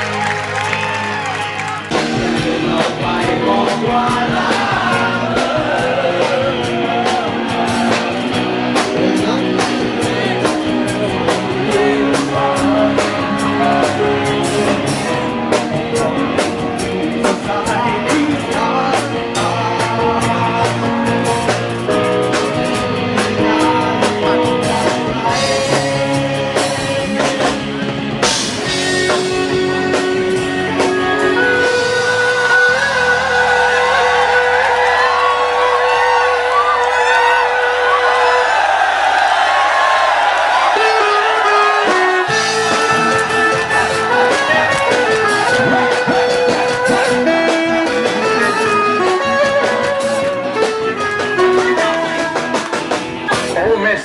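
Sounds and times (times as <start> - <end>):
drum kit: 0.0 - 54.0
guitar: 0.0 - 54.0
man singing into a microphone: 2.0 - 7.8, 10.1 - 14.0, 17.1 - 21.7, 23.2 - 27.1, 29.1 - 38.0.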